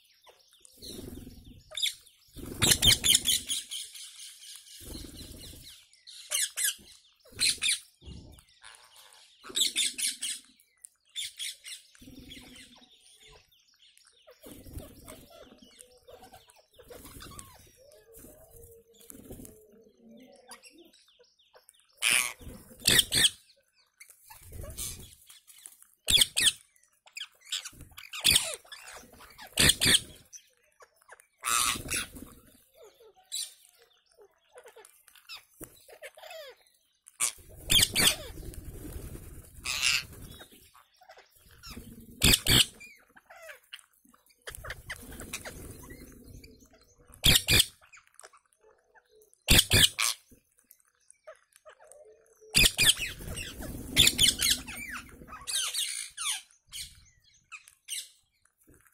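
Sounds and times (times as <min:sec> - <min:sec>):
parakeets screeching: 0:00.8 - 0:07.9, 0:08.6 - 0:10.6, 0:14.2 - 0:19.4, 0:22.0 - 0:23.4, 0:24.0 - 0:50.4, 0:51.2 - 0:58.2
faint parakeet calls: 0:51.0 - 0:58.1.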